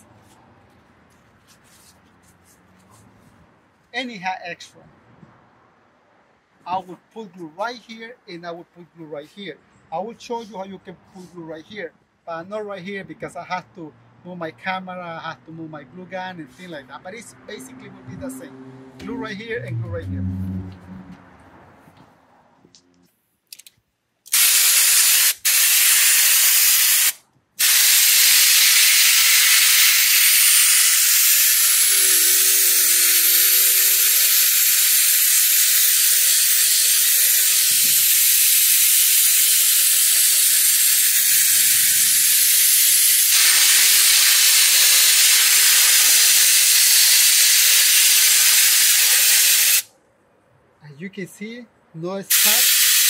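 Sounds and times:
spray glue gun hissing: 24.3 - 49.9, 52.3 - 53.0.

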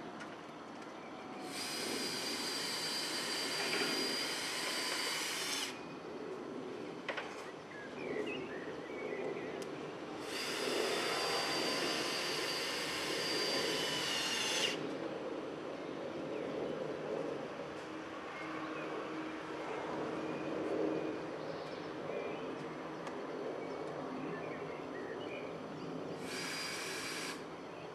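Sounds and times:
cordless drill motor whining: 1.4 - 5.8, 10.2 - 14.8, 26.2 - 27.5.

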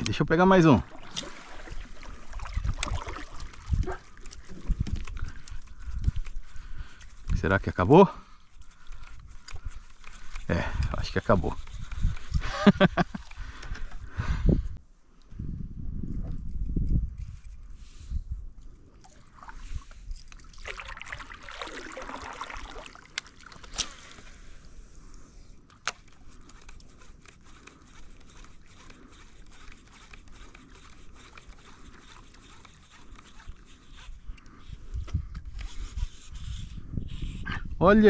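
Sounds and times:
water sloshing against hull: 0.6 - 7.2, 18.7 - 34.4.

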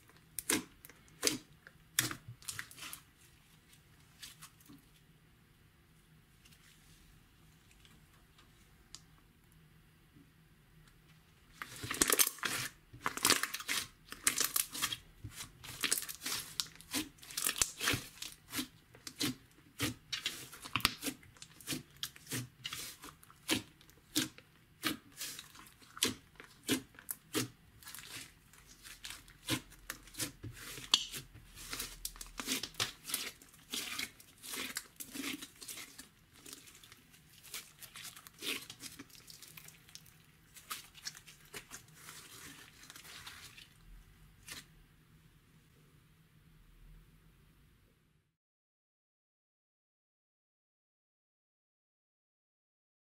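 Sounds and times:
slime squelching: 0.0 - 5.0, 11.5 - 44.7.

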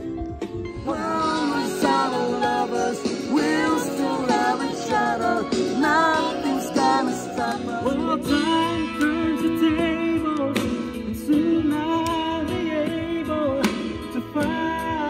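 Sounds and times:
music backing track: 0.0 - 15.0
man singing into a microphone: 5.8 - 15.0.

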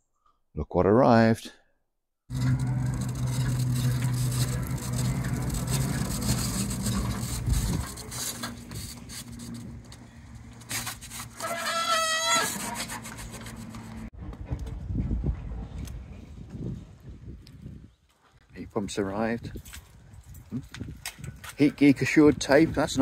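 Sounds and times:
steady low hum: 2.3 - 11.4
pallet truck wheels rattling: 2.3 - 14.1
wavering squeal: 2.3 - 14.1.

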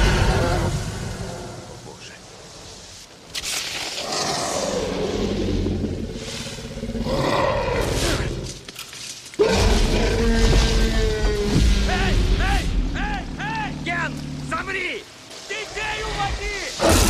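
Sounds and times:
dinosaur growling and roaring: 0.0 - 1.9, 4.0 - 8.6, 9.4 - 12.3
heavy rain hissing: 0.0 - 8.7, 9.4 - 17.0.

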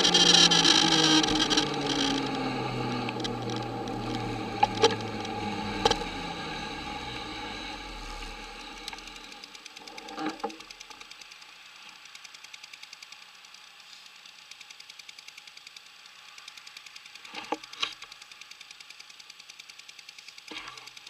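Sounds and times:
moped engine running: 0.0 - 11.5
rapid ticking: 0.0 - 21.0.

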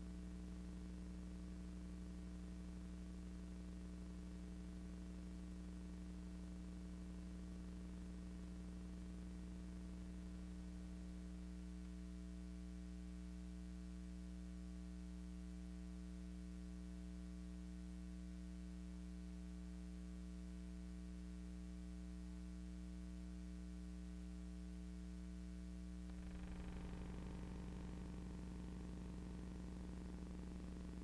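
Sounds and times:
electrical hum: 24.1 - 31.0.

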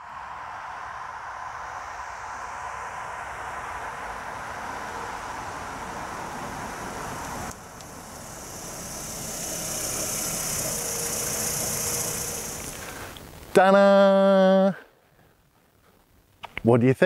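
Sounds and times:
car driving up: 0.0 - 13.6
car engine idling: 1.6 - 13.6.

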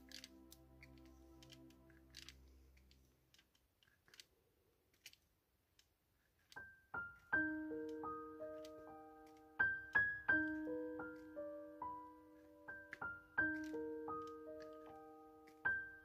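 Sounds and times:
piano music: 0.0 - 2.8, 6.6 - 16.0
faint clicks: 4.9 - 16.0.

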